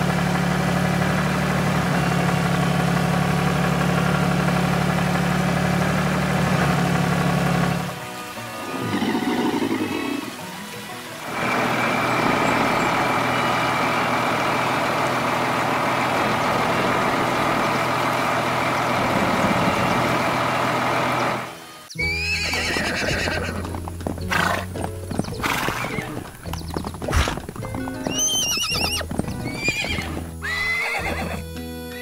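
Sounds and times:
truck engine running: 0.0 - 21.9, 22.7 - 31.9
hooves clopping: 7.3 - 20.3, 22.0 - 32.0
horse whinnying: 8.5 - 10.4, 21.9 - 32.0.

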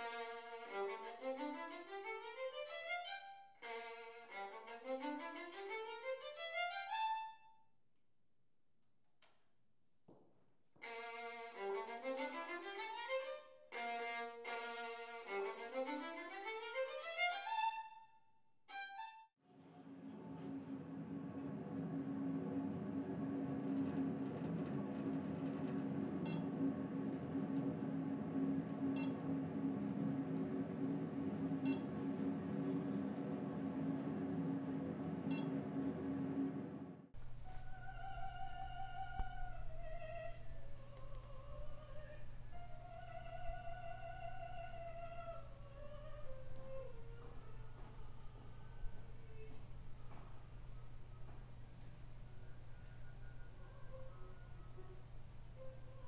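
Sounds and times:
solo violin playing: 0.0 - 7.4, 10.8 - 19.3
low building hum: 19.5 - 56.0.

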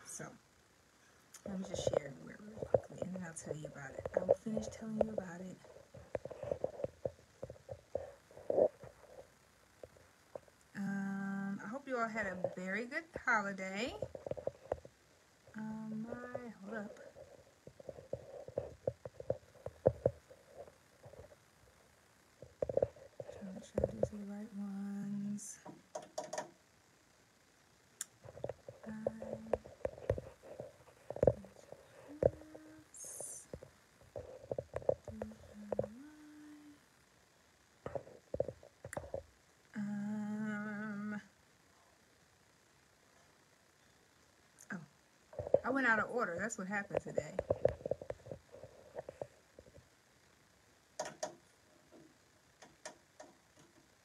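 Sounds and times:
low hum: 0.0 - 26.0, 26.8 - 42.0
light clicks and taps: 25.6 - 26.6, 51.0 - 53.9.

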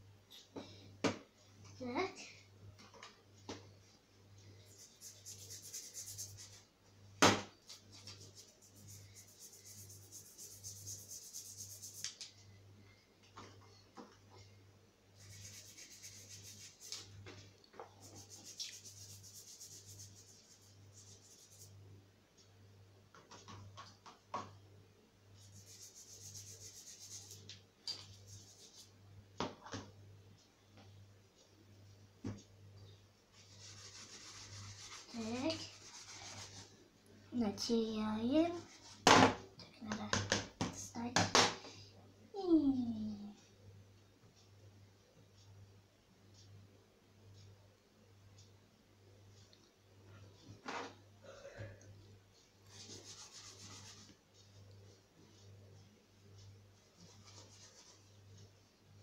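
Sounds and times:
scrubbing scratchy hiss: 4.7 - 6.7, 8.0 - 12.2, 15.2 - 17.1, 18.0 - 21.7, 25.5 - 27.5, 33.4 - 36.7.

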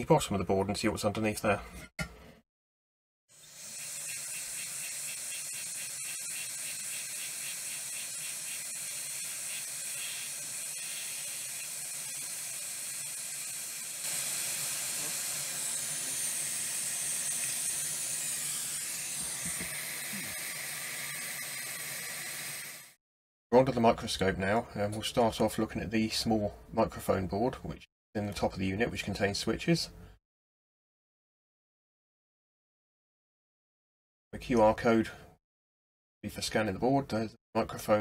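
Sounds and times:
hot air gun hissing: 3.3 - 23.0.

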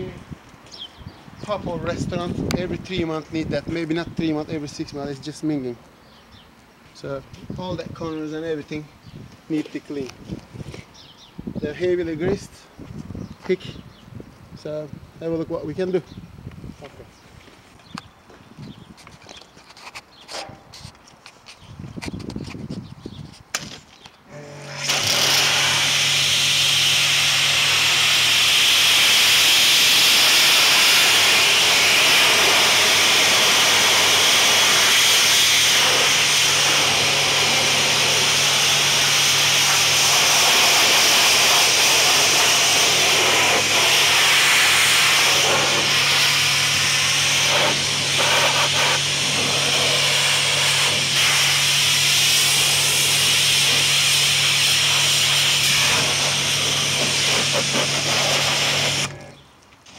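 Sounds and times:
pressure washer jet hissing: 24.3 - 59.3.

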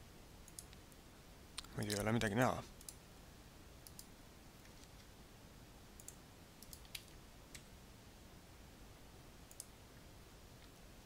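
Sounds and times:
faint room hiss: 0.0 - 11.0
mouse and keyboard clicks: 6.0 - 7.7.

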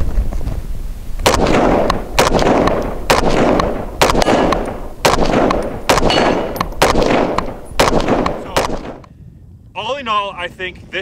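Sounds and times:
rifle shots with rolling echo: 1.2 - 9.1.

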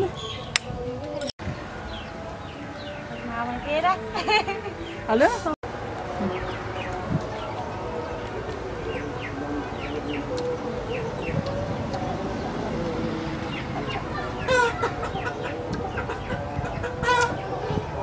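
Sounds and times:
chickens clucking: 4.1 - 18.0
loud chicken call: 13.8 - 17.5.

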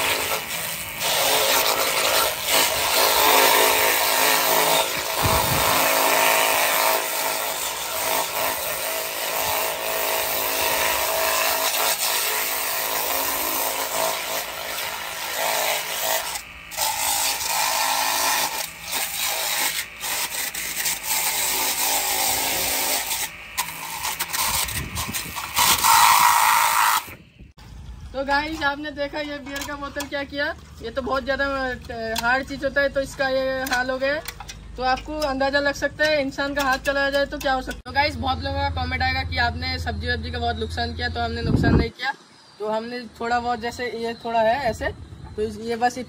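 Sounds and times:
pressure washer motor hum: 0.0 - 11.8.

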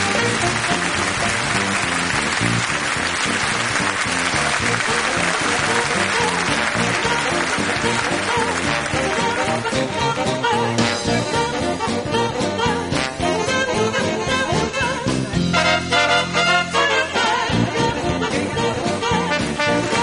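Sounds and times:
audience applause: 0.0 - 10.0
music with steady beat: 0.0 - 20.0.

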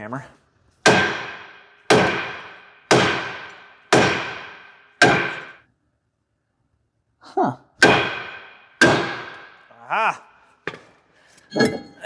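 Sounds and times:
hammer striking metal rotor: 0.9 - 5.6.

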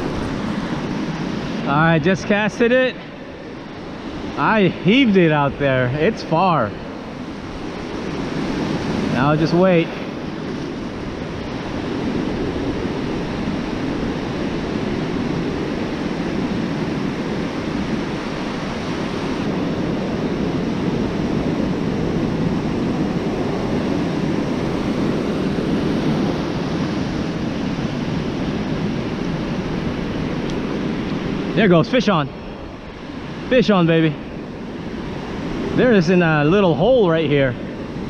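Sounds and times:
ocean surf breaking on beach: 0.0 - 38.0.

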